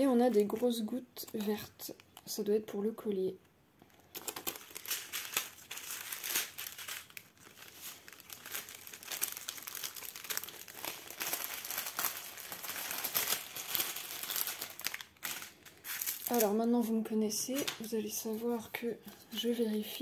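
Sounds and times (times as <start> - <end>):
plastic packaging crinkling: 3.9 - 18.4.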